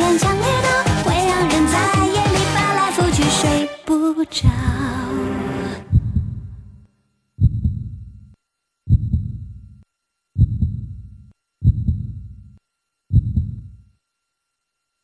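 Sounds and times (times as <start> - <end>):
heartbeat thumps: 4.4 - 5.0, 5.9 - 6.8, 7.4 - 8.3, 8.9 - 9.7, 10.4 - 13.8.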